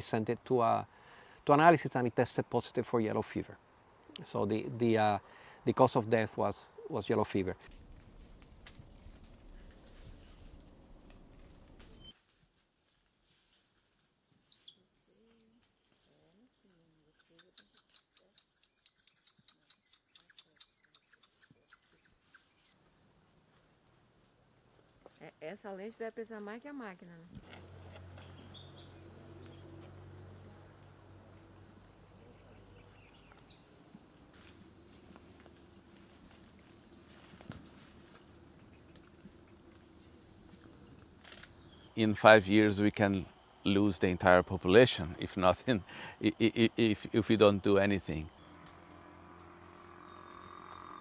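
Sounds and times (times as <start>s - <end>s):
faint outdoor hush: 0.0s - 12.1s, 21.4s - 49.6s
insect trill: 6.7s - 51.0s
monkeys chirping and whistling: 14.1s - 22.6s.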